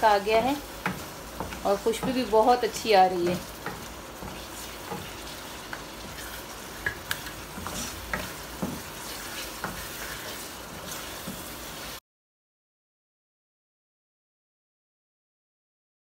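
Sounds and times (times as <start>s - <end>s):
food sizzling in oil: 0.0s - 12.0s
wooden spatula scraping pan: 0.0s - 12.0s.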